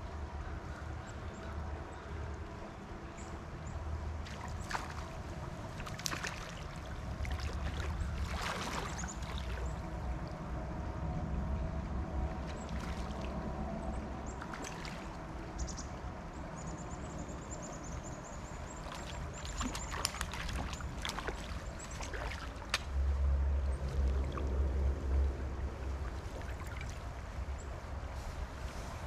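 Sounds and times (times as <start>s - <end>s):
stream water sloshing around legs: 3.7s - 10.7s, 12.1s - 29.0s
sharp splashes: 4.2s - 9.8s, 12.4s - 13.4s, 14.4s - 15.2s, 18.7s - 23.0s, 26.0s - 27.2s.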